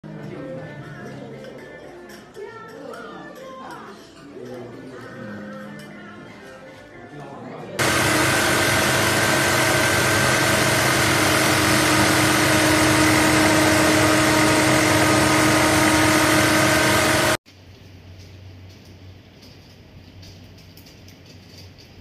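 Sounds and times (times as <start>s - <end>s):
sewing machine running: 7.8s - 17.4s.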